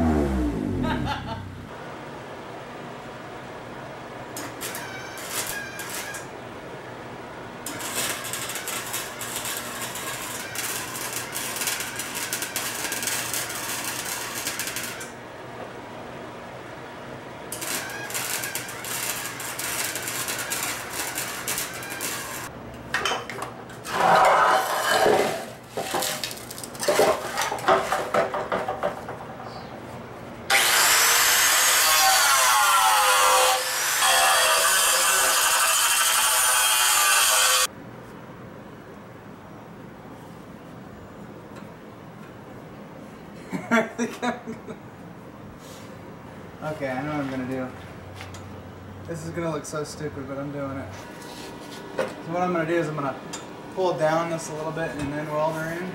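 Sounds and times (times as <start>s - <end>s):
angle grinder cutting steel: 7.7s - 15.1s, 17.5s - 22.5s, 30.5s - 37.7s.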